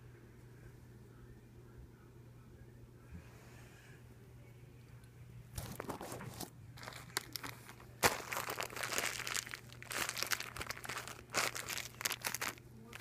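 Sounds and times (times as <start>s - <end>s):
plastic bag crinkling: 5.6s - 13.0s.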